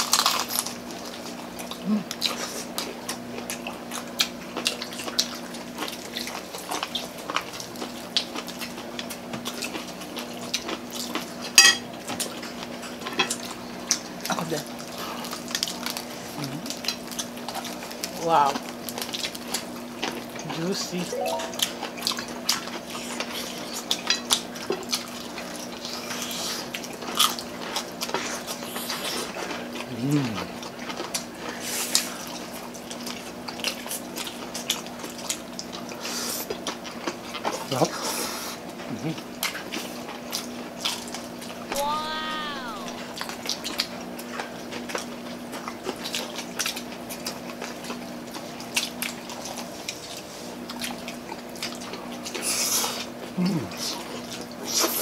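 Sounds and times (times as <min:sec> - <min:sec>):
crackly fried chicken skin tearing: 0:00.0 - 0:01.8
wet chewing and lip-smacking: 0:00.0 - 0:20.7, 0:22.4 - 0:55.0.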